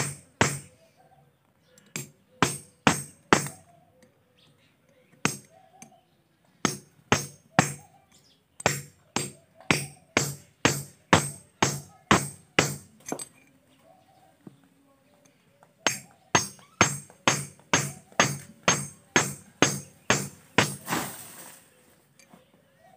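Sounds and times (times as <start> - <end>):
hammer striking metal: 0.0 - 0.8, 2.0 - 3.6, 6.6 - 7.8, 8.6 - 13.3, 15.8 - 20.9.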